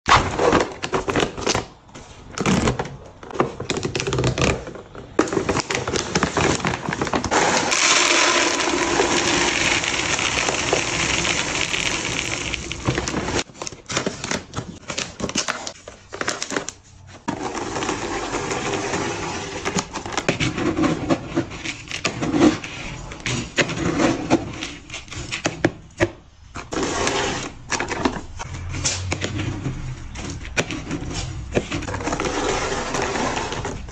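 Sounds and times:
bags crinkling: 5.7 - 17.1
kibble poured into a canister: 7.3 - 13.4.

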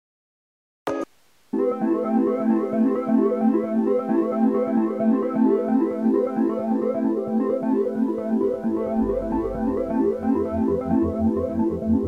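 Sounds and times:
synthesizer and electric piano pattern: 1.5 - 12.0
pulsing bass line: 8.4 - 12.0.

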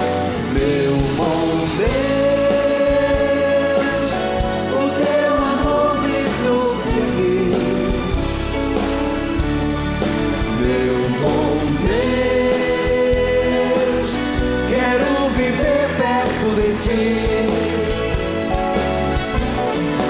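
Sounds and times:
live band playing worship song: 0.0 - 20.0
man singing long held notes: 0.4 - 8.2, 10.5 - 18.2.

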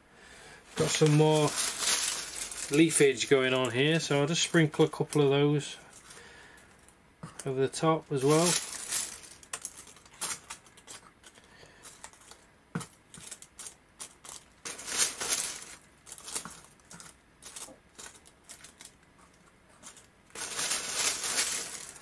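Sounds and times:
dry leaves crackling: 0.7 - 5.3, 8.1 - 10.8, 13.3 - 19.0, 20.3 - 22.0.

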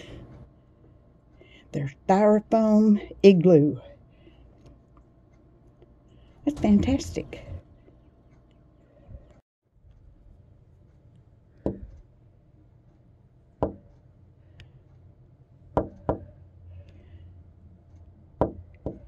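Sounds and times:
faint low hum: 0.0 - 19.0
sharp knocks: 11.6 - 11.9, 13.6 - 13.9, 15.8 - 16.4, 18.4 - 19.0.

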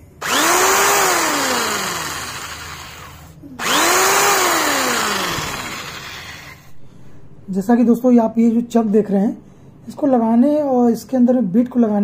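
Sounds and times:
electric drill spinning up and down: 0.2 - 6.6.

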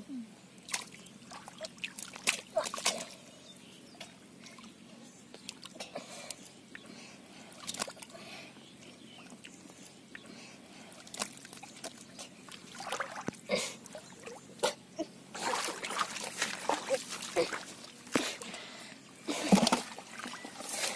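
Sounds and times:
water splashes: 0.6 - 3.2, 11.0 - 14.7, 15.3 - 18.5, 19.3 - 20.9
hands sloshing in muddy water: 10.9 - 14.4, 15.3 - 18.6, 19.3 - 20.9.

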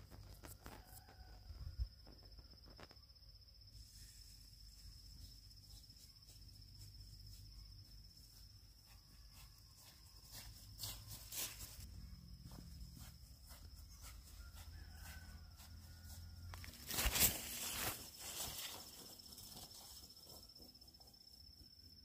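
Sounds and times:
footsteps through grass and leaves: 0.0 - 1.5, 4.7 - 20.5
insects trilling: 0.0 - 22.0
close rustle: 16.5 - 20.1.

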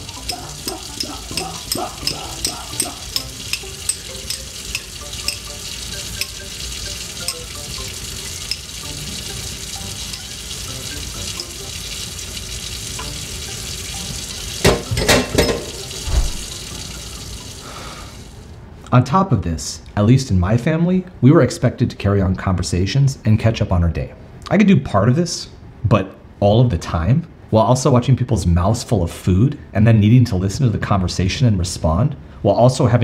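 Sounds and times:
metal utensils scraping: 0.0 - 5.5
tap running into sink: 0.0 - 6.4, 12.9 - 13.3, 13.9 - 17.0.

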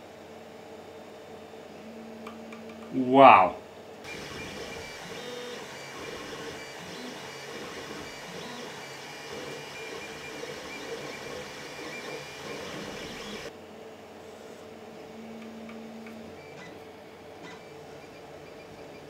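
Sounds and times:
stepper motors whining and buzzing: 4.0 - 13.5
printer fan rushing: 4.1 - 13.5.

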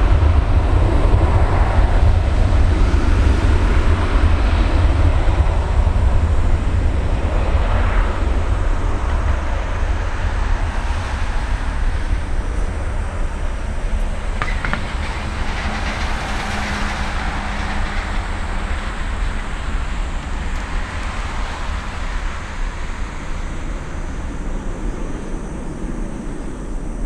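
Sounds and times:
jet engines roaring at takeoff: 0.0 - 27.0.

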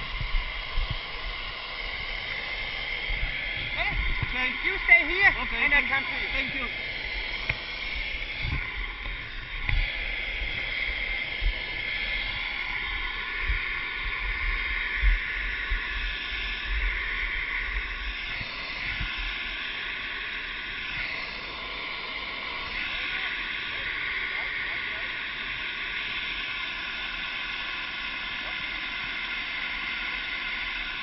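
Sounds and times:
helicopter turbine whine: 0.0 - 31.0.

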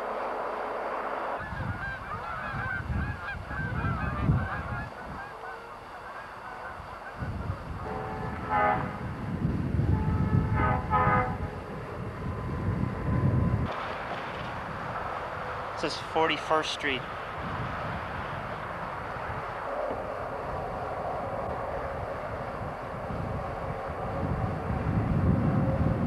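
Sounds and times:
geese honking: 0.6 - 9.0
distant locomotive horn blasts: 1.6 - 13.6
train rumble: 4.0 - 26.0.

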